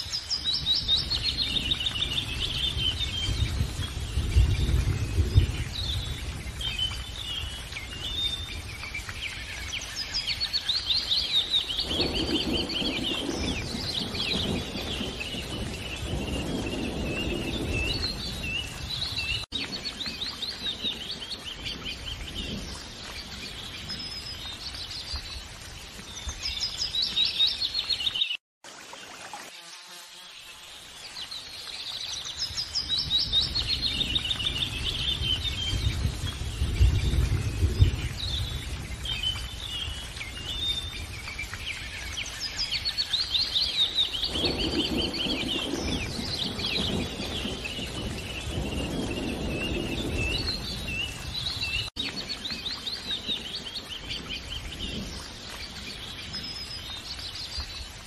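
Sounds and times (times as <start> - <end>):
birds singing and chirping: 0.0 - 28.4, 31.1 - 58.0.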